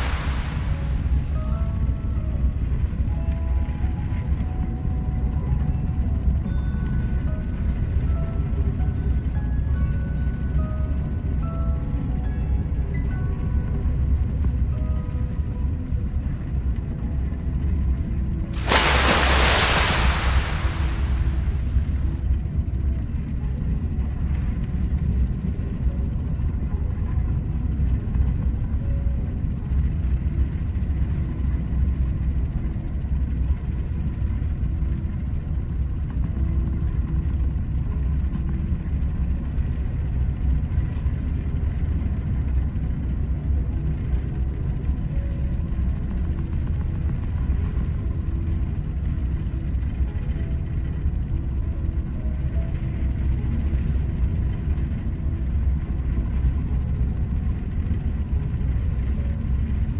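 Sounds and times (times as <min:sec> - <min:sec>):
sea breaking along hull: 0:00.0 - 0:01.7, 0:18.6 - 0:22.2
wind: 0:00.0 - 0:02.3, 0:18.6 - 0:22.2
ship machinery rumble: 0:00.0 - 0:02.4, 0:18.6 - 0:22.2.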